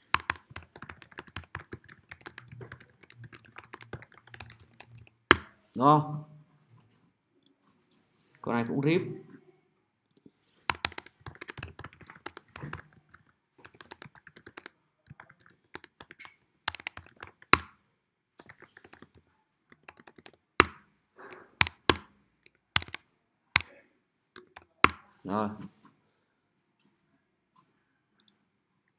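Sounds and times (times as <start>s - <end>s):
typing on computer keyboard: 0.0s - 5.6s, 10.7s - 17.8s, 18.4s - 23.0s, 24.4s - 25.1s.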